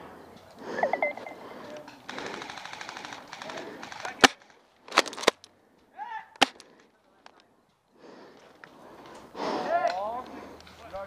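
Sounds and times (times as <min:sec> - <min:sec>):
airsoft gunfire: 0:02.1 - 0:04.5.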